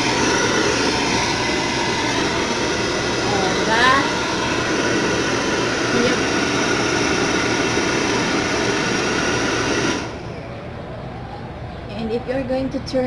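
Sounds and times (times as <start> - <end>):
hair dryer running: 0.0 - 10.4.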